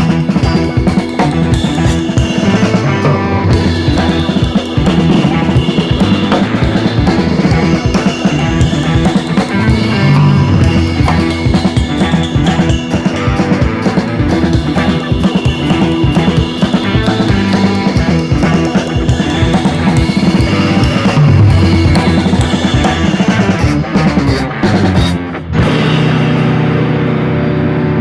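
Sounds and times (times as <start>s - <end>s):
music with drum beat and bass: 0.0s - 28.0s.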